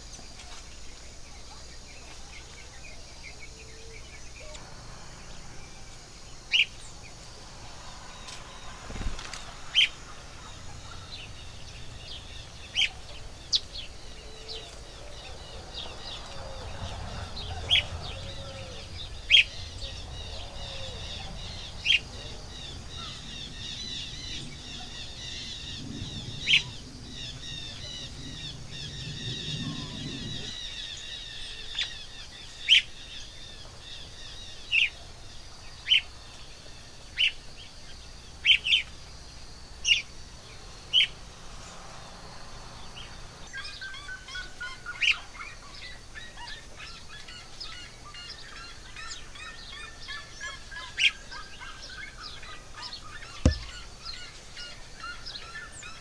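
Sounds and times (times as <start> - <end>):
birds twittering: 0.0 - 56.0
low rumble: 4.5 - 30.5.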